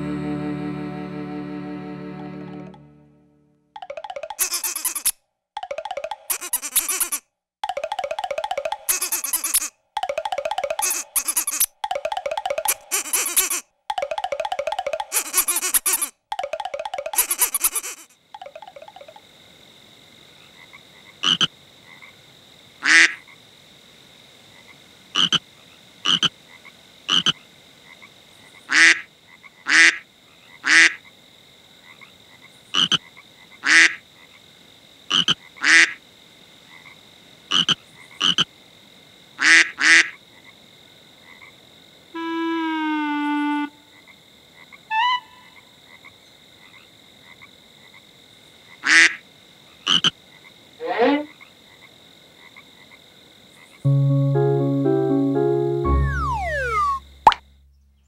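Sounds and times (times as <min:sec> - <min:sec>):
frog croaking: 0:06.1 - 0:19.2, 0:20.5 - 0:22.2, 0:22.8 - 0:23.4, 0:24.6 - 0:31.1, 0:32.7 - 0:34.4, 0:35.1 - 0:36.0, 0:36.7 - 0:38.5, 0:49.8 - 0:50.2.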